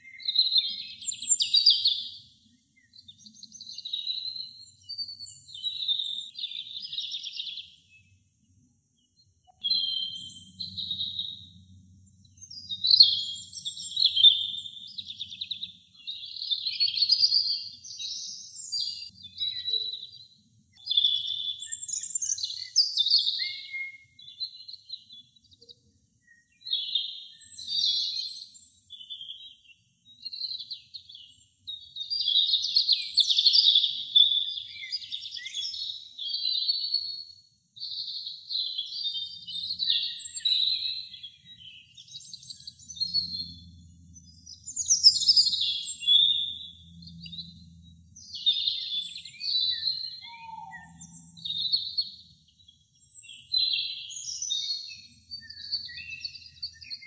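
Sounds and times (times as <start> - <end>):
robin singing: 0.0 - 57.0.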